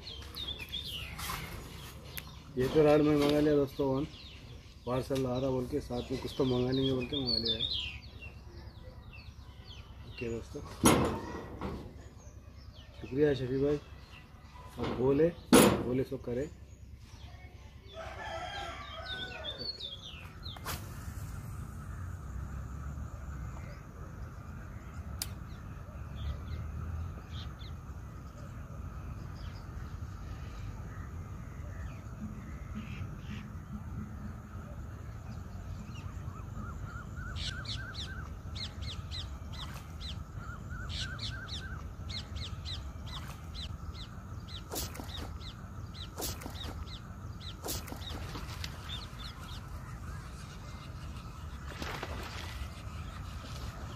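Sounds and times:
birds calling: 0.0s - 53.9s
low wind rumble: 18.5s - 53.9s.

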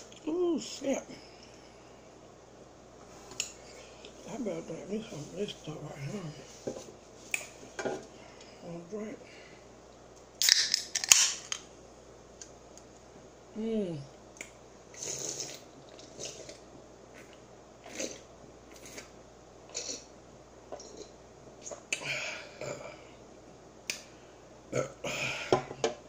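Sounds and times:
person vocal sound: 13.6s - 14.1s
person gulping soda: 14.4s - 19.1s.

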